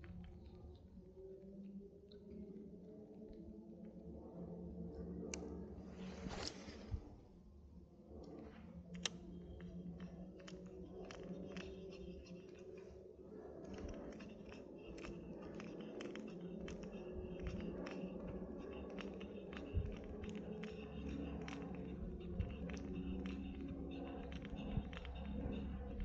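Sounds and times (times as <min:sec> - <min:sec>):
low hum of turning reel: 0:08.9 - 0:26.0.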